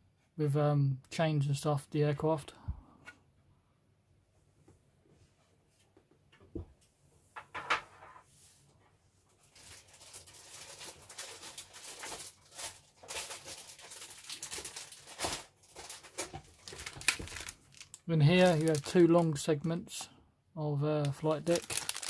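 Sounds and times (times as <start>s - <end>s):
plastic bag crinkling: 9.4s - 19.6s, 21.0s - 22.0s.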